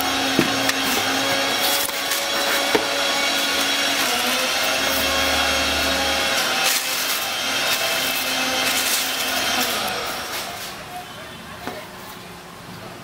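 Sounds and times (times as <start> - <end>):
packing material rustling: 0.2 - 5.7, 6.3 - 10.8.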